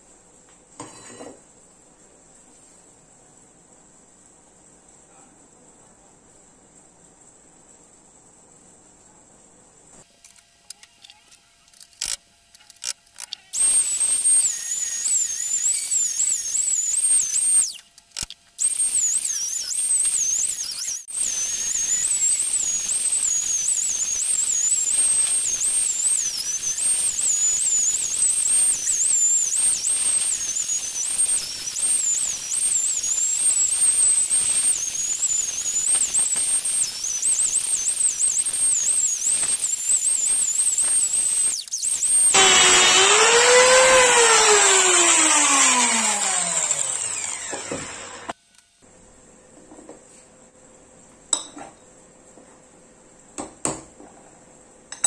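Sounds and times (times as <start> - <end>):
angle grinder whine: 13.6 - 17.9, 18.6 - 48.4.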